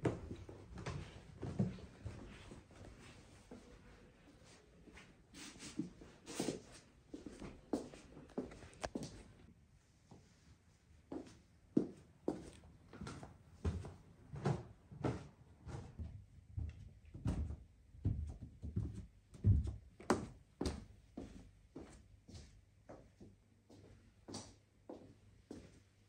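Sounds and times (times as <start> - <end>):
footsteps on carpeted stairs: 0.0 - 3.8, 11.1 - 25.7.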